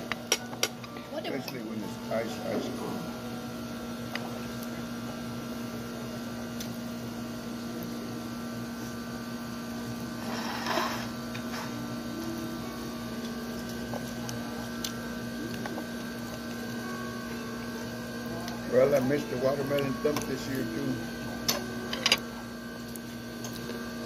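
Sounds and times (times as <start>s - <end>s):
electrical hum: 0.0s - 24.0s.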